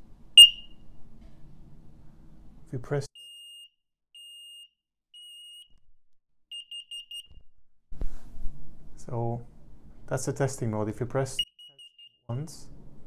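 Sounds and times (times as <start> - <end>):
alarm high beeps: 0.4 - 0.7
short alarm beeps: 0.4 - 0.8, 6.5 - 7.3, 11.4 - 12.3.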